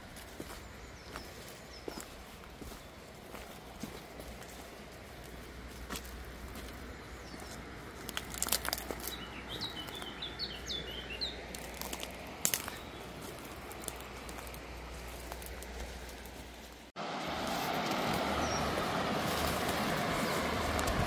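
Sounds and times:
footsteps crunching twigs and leaves: 0.0s - 21.0s
small bird chirping: 6.6s - 11.9s, 12.6s - 14.6s
sharp crackles: 8.0s - 9.2s, 11.5s - 16.9s.

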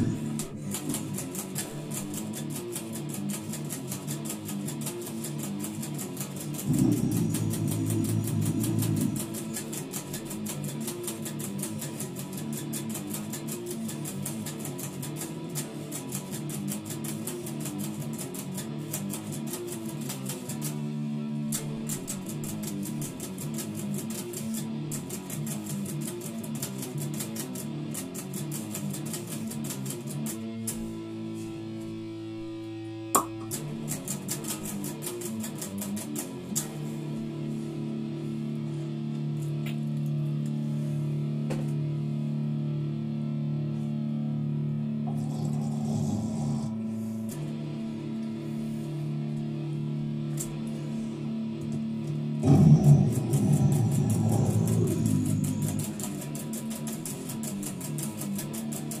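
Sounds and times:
heavy metal electric guitar: 0.0s - 3.2s, 5.8s - 12.8s, 52.2s - 57.6s.

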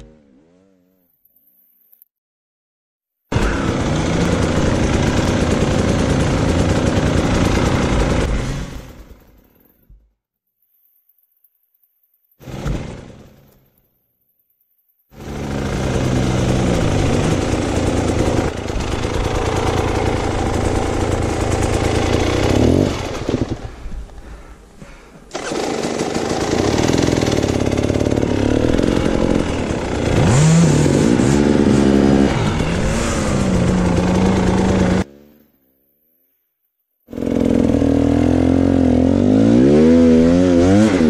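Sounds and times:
dirt bike engine revving: 3.3s - 9.0s, 12.4s - 13.5s, 15.2s - 23.8s, 25.3s - 35.7s, 37.1s - 41.0s.

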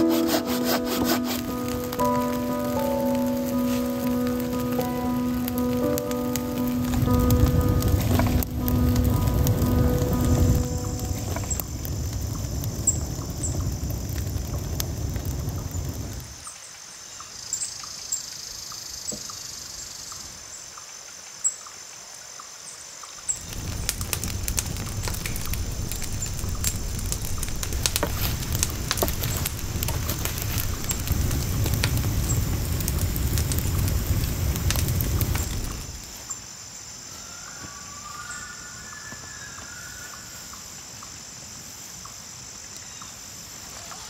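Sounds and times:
campfire crackling and popping: 0.0s - 16.5s, 23.3s - 36.3s.

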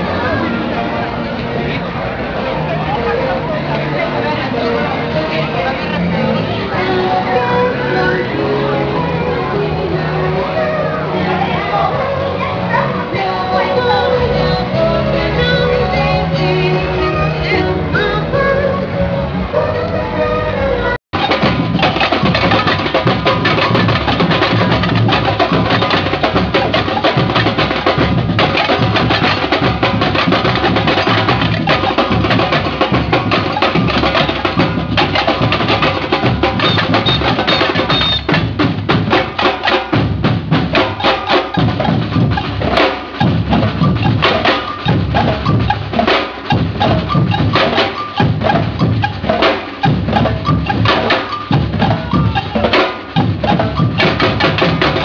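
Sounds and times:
deep bass drums: 21.1s - 55.0s
sharp clicking drum strokes: 21.2s - 55.0s.

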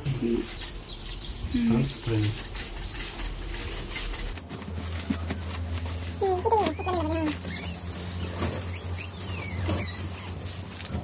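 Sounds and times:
puppies whimpering: 6.2s - 10.5s
high squeaks: 6.4s - 10.6s.

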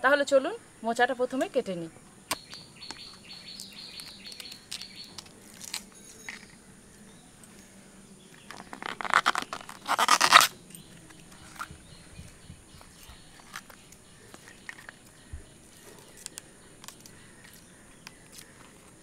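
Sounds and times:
crisp crunching and crackling: 3.6s - 6.5s, 8.3s - 11.7s
knife scraping banana flower: 8.5s - 10.5s.

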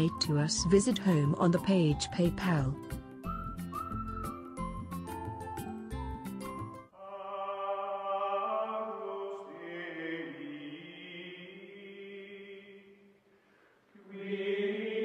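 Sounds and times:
slow chant-like held voices: 7.0s - 13.2s, 13.9s - 15.0s.

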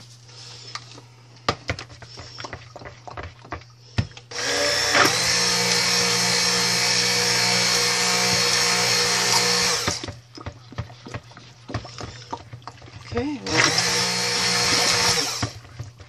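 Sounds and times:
immersion blender running: 4.3s - 10.2s, 13.3s - 15.6s.

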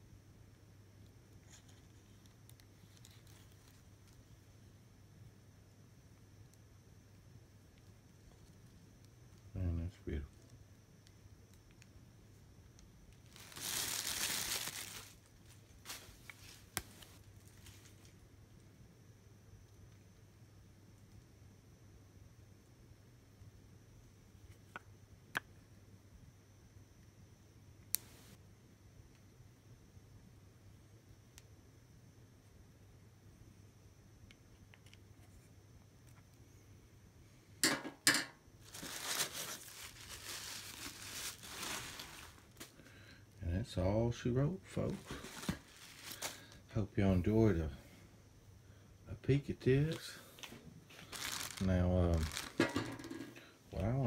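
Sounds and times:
packing paper crinkling: 1.5s - 4.2s, 13.2s - 18.2s, 38.6s - 42.8s, 44.9s - 46.6s, 49.9s - 53.1s.

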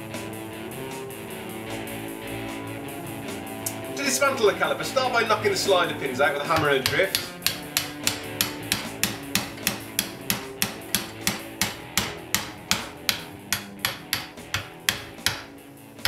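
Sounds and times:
hammer striking metal: 6.5s - 15.6s.

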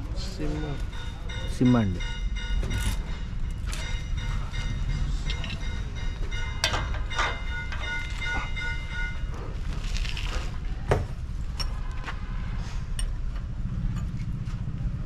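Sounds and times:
steady low rumble: 0.0s - 15.0s
metal parts clanking: 5.1s - 8.5s.

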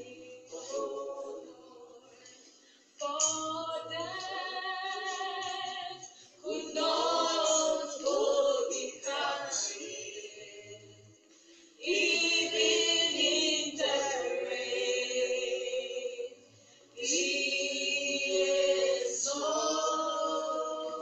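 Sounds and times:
group singing a cappella: 0.0s - 21.0s.

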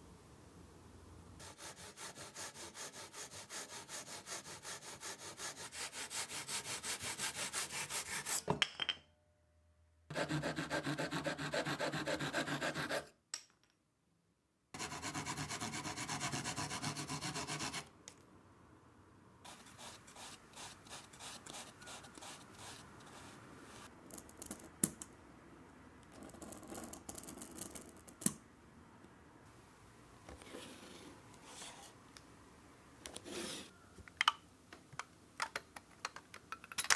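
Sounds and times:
sanding block rubbing: 1.4s - 8.4s, 10.1s - 13.0s, 14.8s - 17.9s, 19.5s - 23.9s.

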